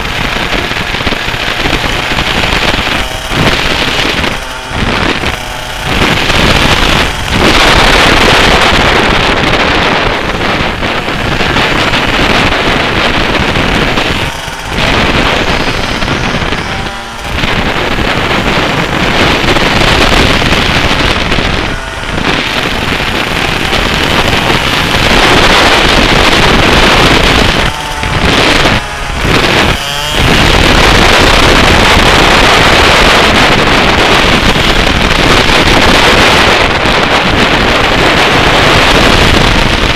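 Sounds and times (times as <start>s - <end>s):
kart engine running hard: 0.0s - 39.9s
wind buffeting microphone: 0.0s - 39.9s.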